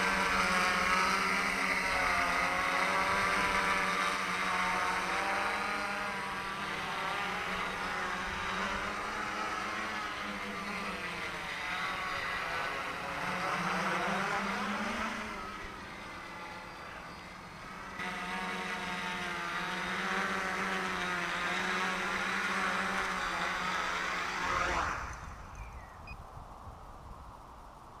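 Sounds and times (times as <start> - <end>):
drone propellers buzzing: 0.0 - 26.2
motors spinning down whine: 0.0 - 26.2.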